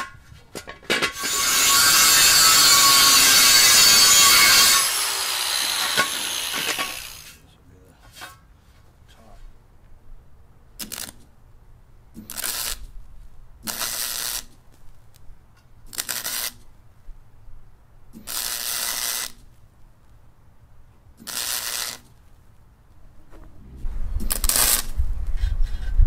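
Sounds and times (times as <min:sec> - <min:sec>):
electric welder crackling: 0:01.2 - 0:07.4, 0:10.8 - 0:11.2, 0:12.3 - 0:12.8, 0:13.6 - 0:14.6, 0:15.9 - 0:16.6, 0:18.2 - 0:19.4, 0:21.2 - 0:22.2, 0:24.2 - 0:25.0.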